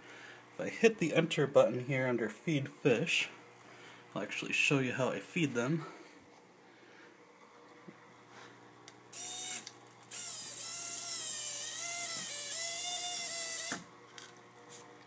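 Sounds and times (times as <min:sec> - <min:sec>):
motor whine wavering: 0:09.1 - 0:13.9
small electric motor whirring: 0:09.1 - 0:13.9.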